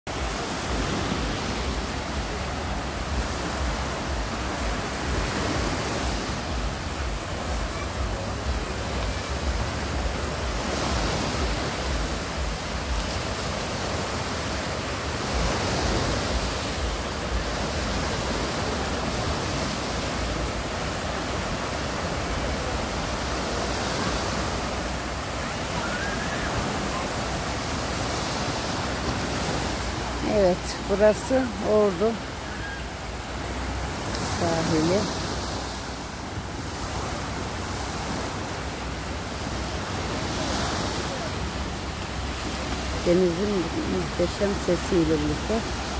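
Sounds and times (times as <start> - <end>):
waves breaking on shore: 0.1 - 45.9.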